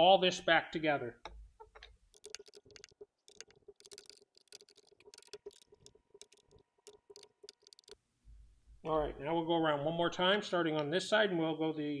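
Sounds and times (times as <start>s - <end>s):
faint clicks and ticks: 1.2s - 8.0s.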